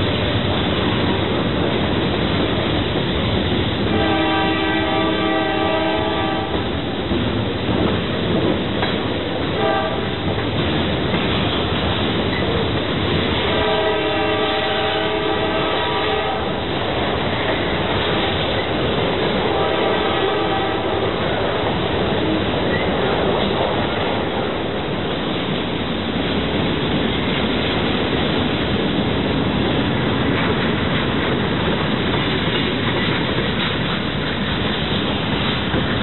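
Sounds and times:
freight cars clattering on rails: 0.0s - 36.0s
train horn chord: 3.9s - 6.7s, 9.6s - 10.2s, 13.4s - 16.6s, 19.4s - 21.8s.

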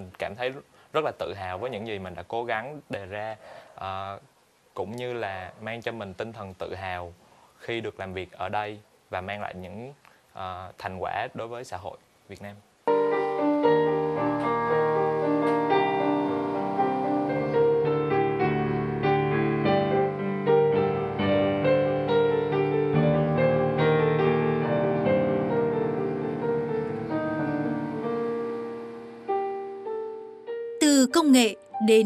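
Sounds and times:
solo piano music: 12.9s - 30.8s.

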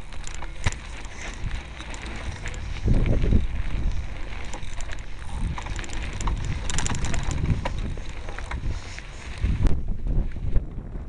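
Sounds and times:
rattling clicks: 0.0s - 8.7s
low rumbling: 0.0s - 11.0s
wind buffeting microphone: 0.0s - 11.0s.

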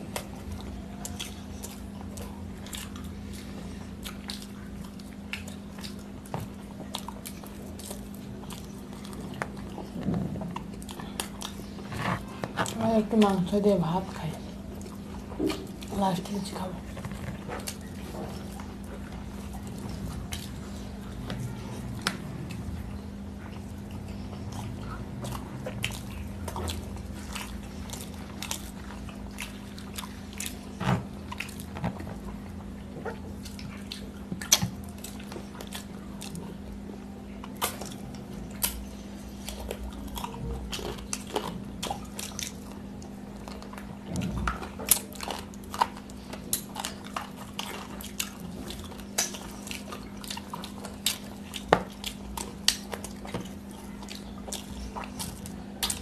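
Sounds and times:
people chewing and lip-smacking: 0.0s - 56.0s
steady low hum: 0.0s - 56.0s.

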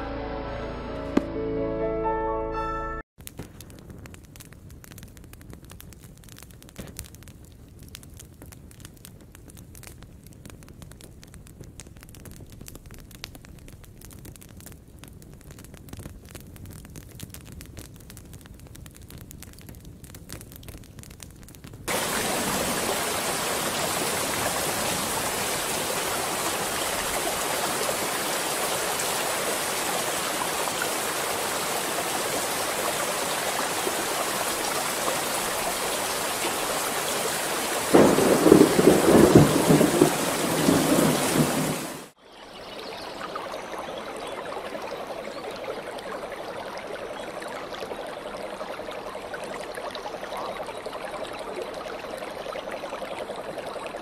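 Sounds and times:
thunder rumbling: 21.9s - 42.1s
heavy rain: 21.9s - 42.2s
running water: 21.9s - 54.0s.

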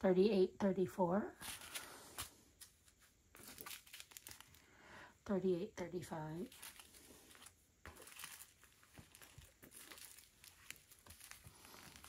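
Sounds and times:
plastic bags crinkling: 1.4s - 4.7s, 6.4s - 12.0s.

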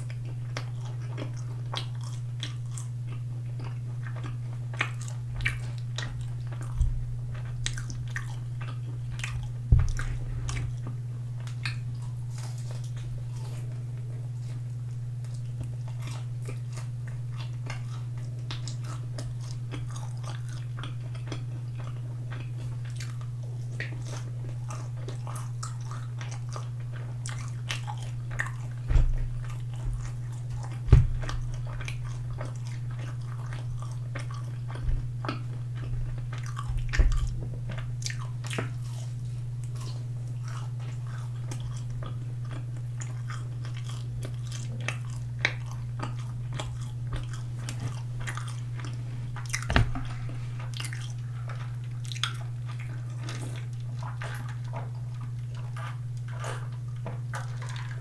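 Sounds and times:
crunchy chewing of fried chicken: 0.0s - 58.0s
steady low hum: 0.0s - 58.0s
low thumps: 9.7s - 10.8s, 30.8s - 31.4s.

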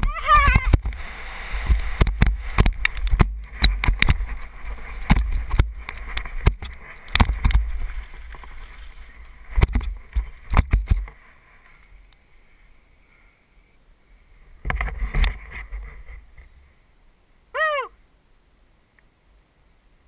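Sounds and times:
faint hiss: 0.6s - 20.0s
bike knocking and rattling: 1.6s - 11.2s.

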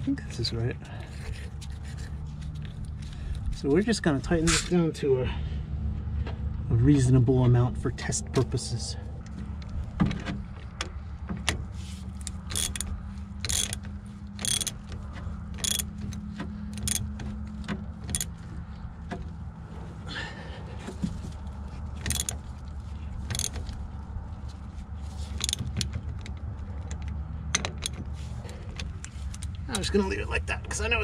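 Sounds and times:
ratchet wrench clicking: 12.2s - 14.9s, 15.6s - 15.9s, 16.7s - 17.1s, 18.0s - 18.3s, 22.0s - 22.4s, 23.3s - 23.7s, 25.4s - 25.9s.

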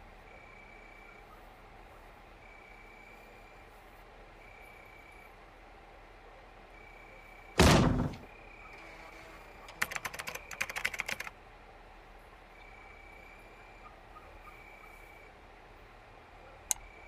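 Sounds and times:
loud thump on desk: 7.6s - 8.3s
keyboard typing: 8.8s - 11.3s.

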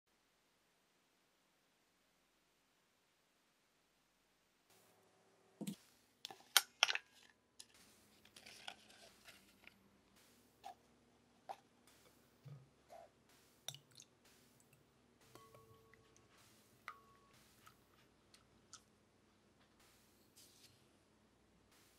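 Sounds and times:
paper rustling: 5.7s - 10.8s, 19.8s - 20.9s.

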